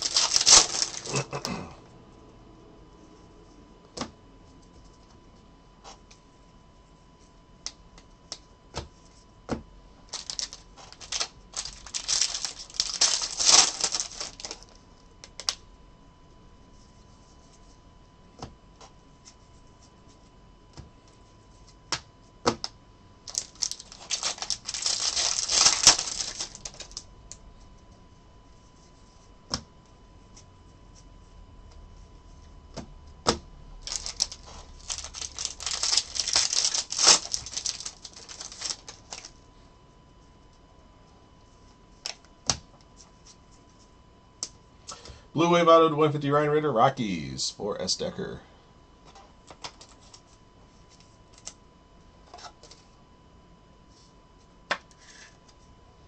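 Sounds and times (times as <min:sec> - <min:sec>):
cards riffling and sliding: 0:00.0 - 0:01.2
foil pack crinkling: 0:00.0 - 0:01.6, 0:10.1 - 0:14.8, 0:23.2 - 0:27.0, 0:33.8 - 0:39.4.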